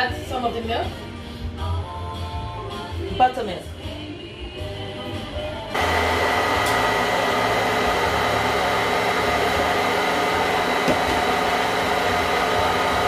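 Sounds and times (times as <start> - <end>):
stand mixer motor whirring: 5.8 - 13.0.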